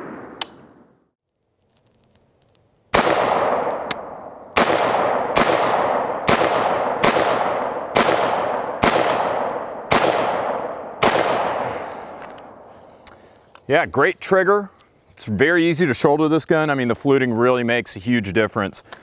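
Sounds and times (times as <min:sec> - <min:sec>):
rifle shots echoing: 0:02.9 - 0:12.6.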